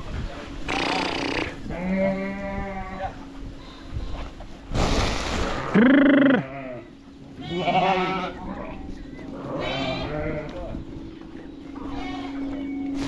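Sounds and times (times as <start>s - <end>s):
sheep bleating: 0.9s - 3.8s, 5.8s - 8.7s, 9.4s - 10.6s.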